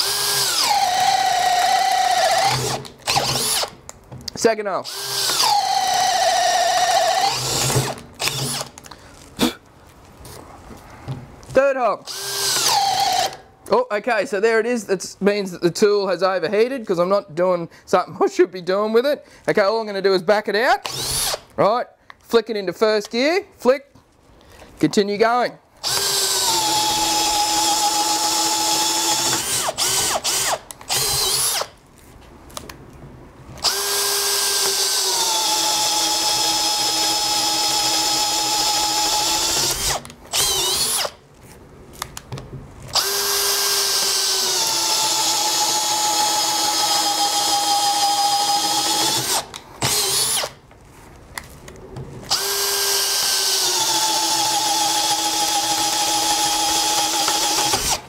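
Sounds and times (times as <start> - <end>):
drill boring into hardwood: 0.0 - 3.8, 4.8 - 8.7, 12.0 - 13.4, 20.8 - 21.5, 25.8 - 31.7, 33.6 - 41.2, 42.9 - 50.6, 52.3 - 58.0.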